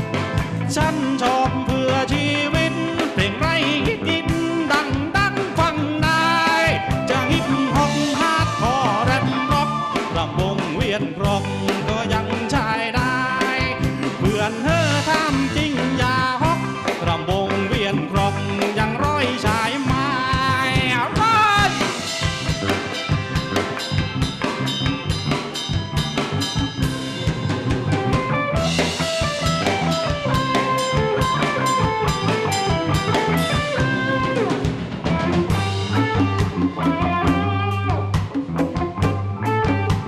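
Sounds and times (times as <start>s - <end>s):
drum kit beat: 0.0s - 40.0s
electric guitar lead: 0.0s - 40.0s.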